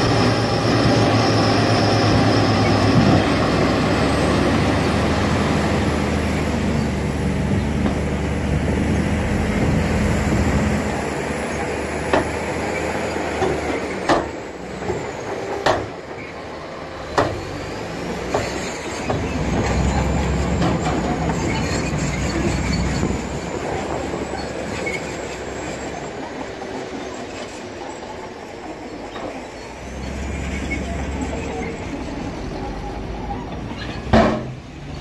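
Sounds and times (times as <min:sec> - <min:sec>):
diesel truck engine running: 0:00.0 - 0:26.9.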